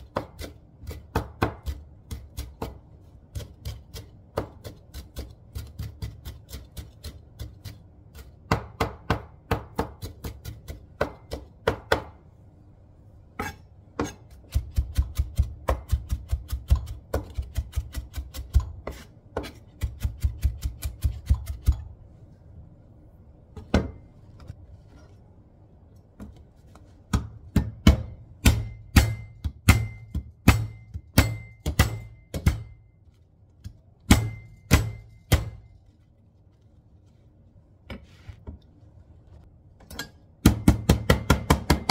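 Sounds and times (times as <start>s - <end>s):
knife chopping on cutting board: 13.4s - 21.8s.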